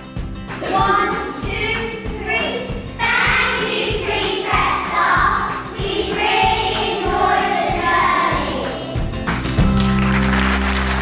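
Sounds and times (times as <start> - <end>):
instrumental backing music: 0.0 - 11.0
children singing together: 0.6 - 9.3.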